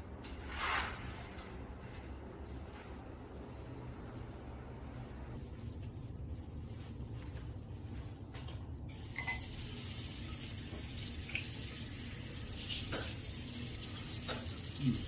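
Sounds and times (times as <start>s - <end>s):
water running from a tap: 8.9s - 15.0s.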